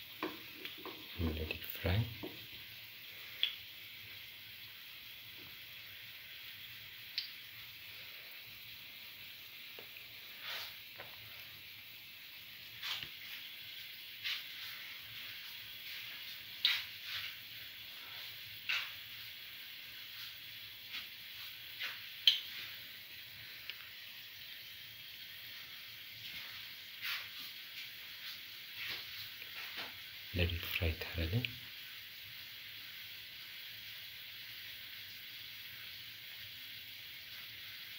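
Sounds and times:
fritters sizzling in oil: 0.0 - 37.9
oil pops and clicks: 22.2 - 22.5.

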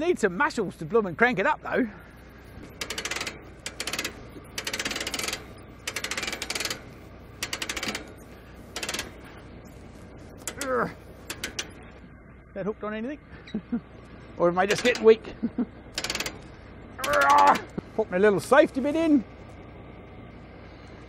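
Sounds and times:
winch ratchet clicking: 2.4 - 9.4, 10.4 - 11.9, 14.7 - 15.2, 15.9 - 17.7.

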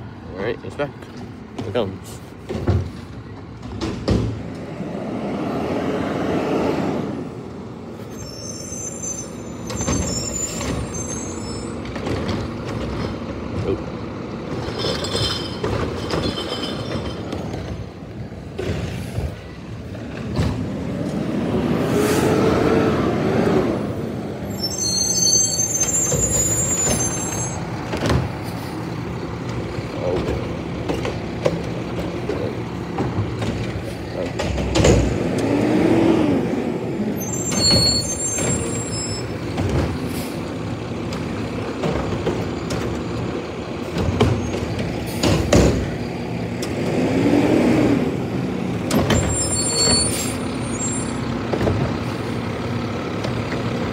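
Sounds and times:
truck engine revving: 4.4 - 7.7, 19.8 - 24.5, 25.6 - 53.9
brake squeals: 7.9 - 21.2, 21.9 - 53.9.

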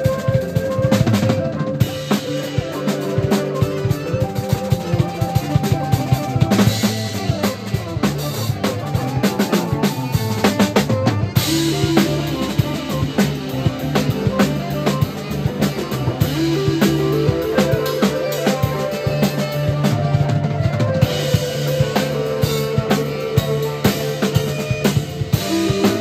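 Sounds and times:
busy drum kit: 0.0 - 26.0
jazz band playing: 0.0 - 26.0.

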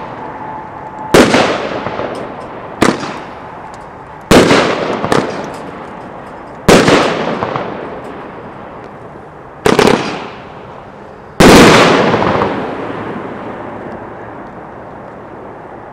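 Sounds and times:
echoing rumble: 0.0 - 6.1
firework bangs: 0.0 - 8.5, 9.6 - 10.6, 11.4 - 13.7.

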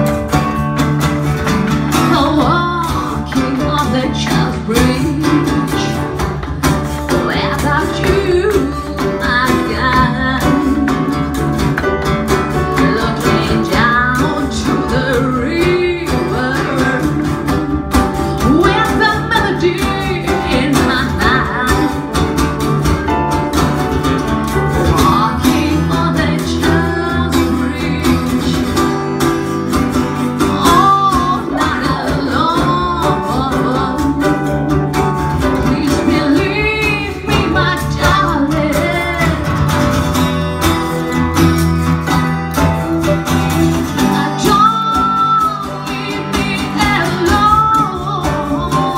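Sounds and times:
acoustic guitar: 0.0 - 48.9
electric guitar: 0.0 - 48.9
woman singing into a microphone: 1.9 - 11.8, 12.5 - 22.4, 24.7 - 29.1, 30.3 - 40.1, 43.8 - 48.9.

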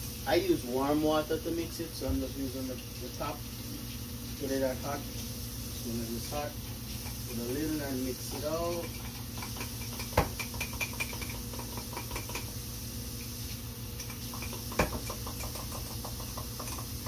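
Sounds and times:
spoon knocking on mug: 8.7 - 12.5, 14.3 - 16.8.

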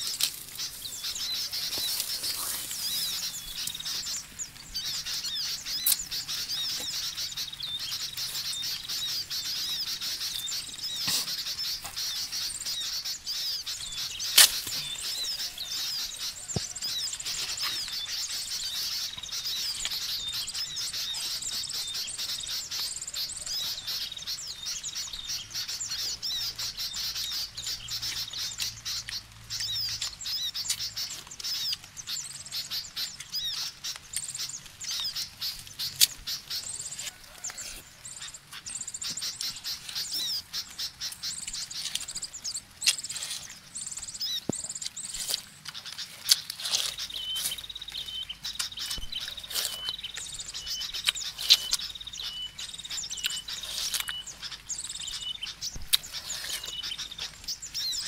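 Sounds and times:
wet chewing and slurping: 0.0 - 7.2, 8.2 - 12.8, 34.2 - 58.0
birds chirping: 0.0 - 58.0.

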